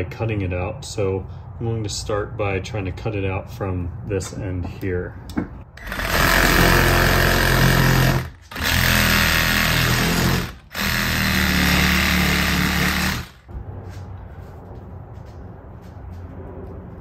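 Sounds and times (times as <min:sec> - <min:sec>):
reciprocating saw cutting rubber: 0:05.8 - 0:13.5.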